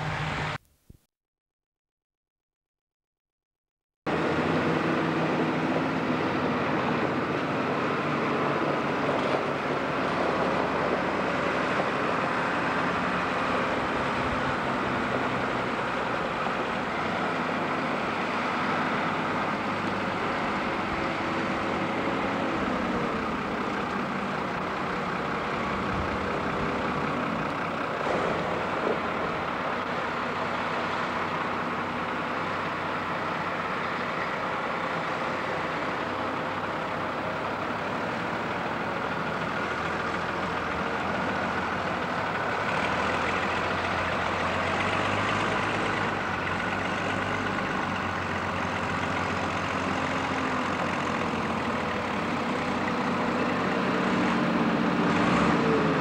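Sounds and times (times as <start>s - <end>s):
diesel tractor engines running: 0.0s - 0.6s, 4.1s - 56.0s.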